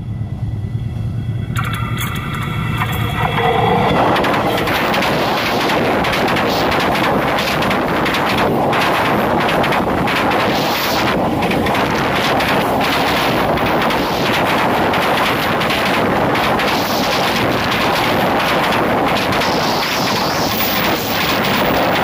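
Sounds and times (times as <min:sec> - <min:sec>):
train wheels rumbling on rails: 0:00.0 - 0:22.0.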